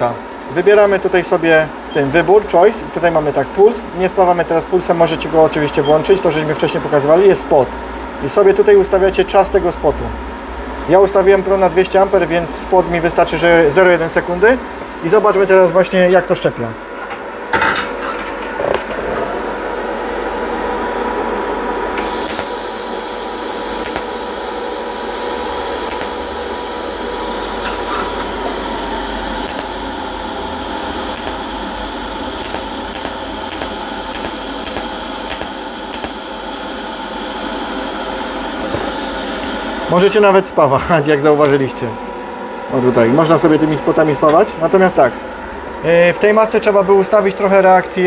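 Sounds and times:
welding arc buzzing in pulses: 22.0s - 40.2s
bright welding hiss: 22.0s - 40.3s.

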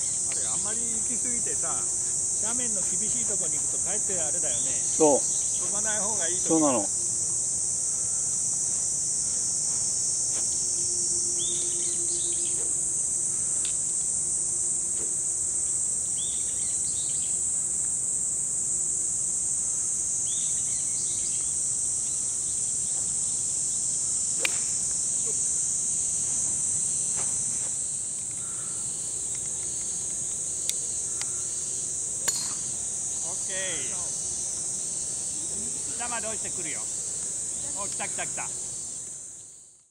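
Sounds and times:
cicadas droning: 0.0s - 39.9s
golf club striking ball: 24.4s - 24.8s, 32.2s - 32.7s.

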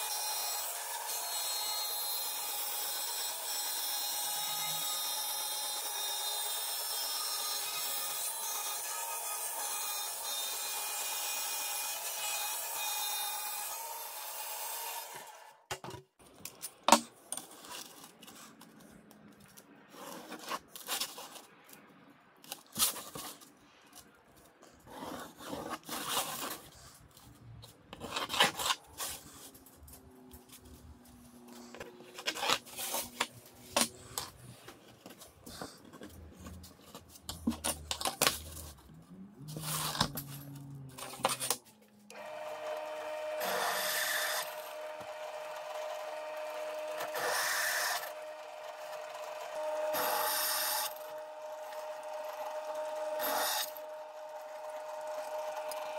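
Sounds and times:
band saw cutting plywood: 0.0s - 15.5s, 39.5s - 55.9s.

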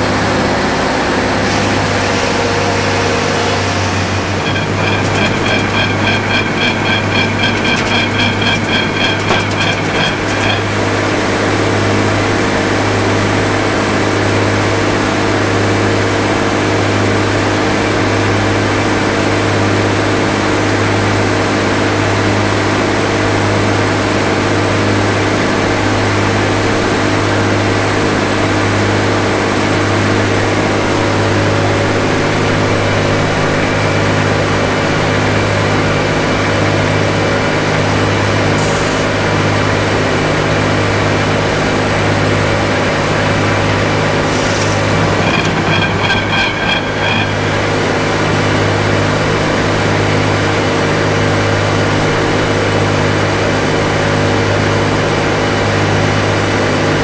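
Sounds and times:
circular sawmill blade droning: 1.5s - 14.4s, 42.8s - 49.9s.

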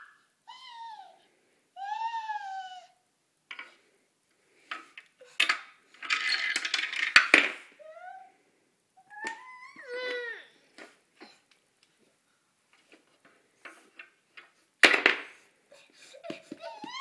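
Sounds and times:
toy car clattering down ramps: 5.4s - 7.6s.

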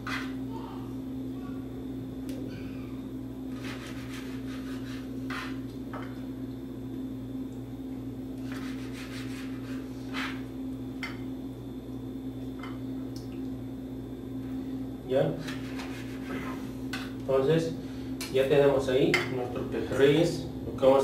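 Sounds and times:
low steady hum: 0.0s - 21.0s
knife cutting on cutting board: 3.5s - 5.6s.

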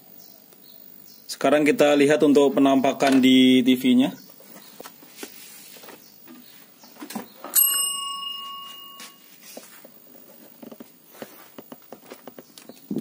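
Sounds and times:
bright metallic ring: 7.5s - 9.8s.

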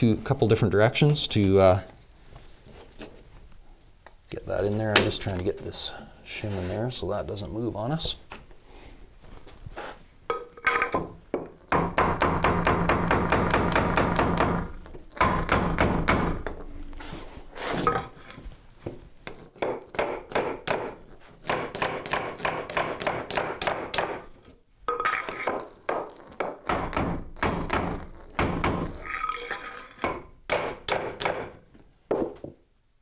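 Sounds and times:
hammer striking wooden block: 10.3s - 14.6s, 15.2s - 16.8s, 19.6s - 24.2s, 24.9s - 29.1s, 30.0s - 32.5s.

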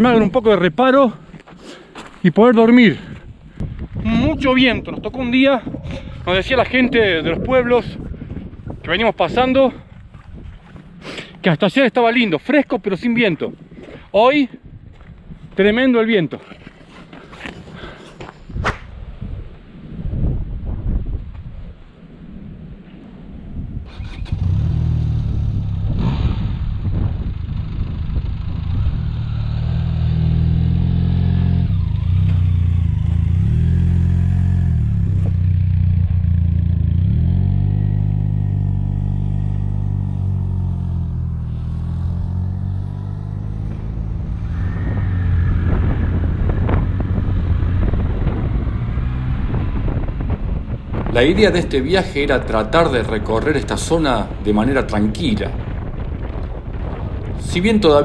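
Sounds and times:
motorcycle engine running: 24.2s - 51.1s.

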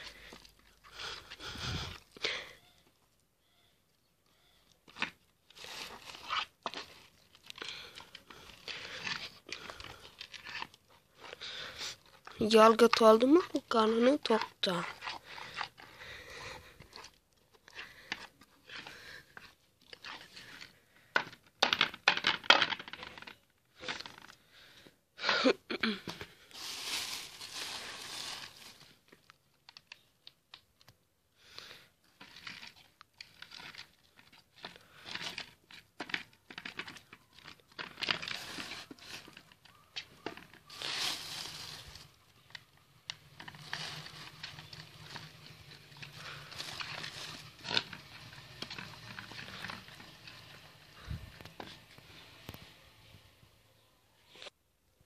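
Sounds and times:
heavy breathing: 0.0s - 2.7s, 11.1s - 12.3s, 15.0s - 19.6s
rustling and crinkling handling: 4.7s - 24.4s, 25.9s - 31.0s, 32.0s - 52.8s.

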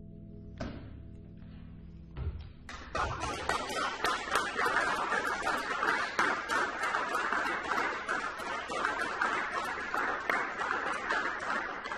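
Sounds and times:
audience applauding: 2.7s - 11.9s.

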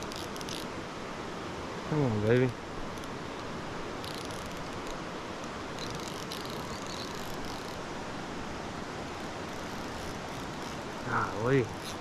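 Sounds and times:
fishing reel drag whining: 0.0s - 0.7s, 4.0s - 5.0s, 5.7s - 7.8s, 9.3s - 12.0s
stream rushing: 0.0s - 12.0s.

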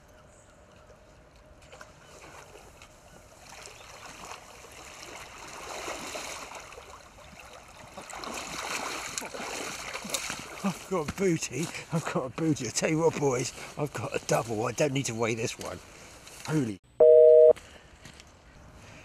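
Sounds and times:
river water splashing around boots: 1.6s - 16.5s.

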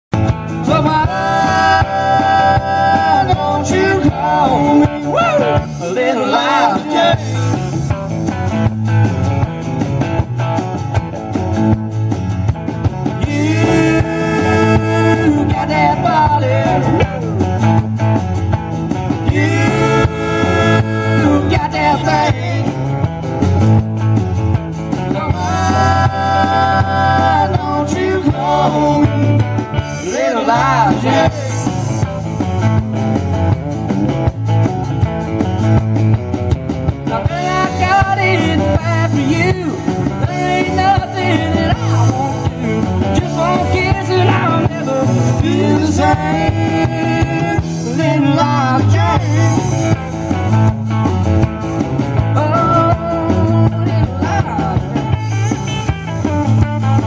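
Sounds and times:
live band playing: 0.1s - 57.0s.

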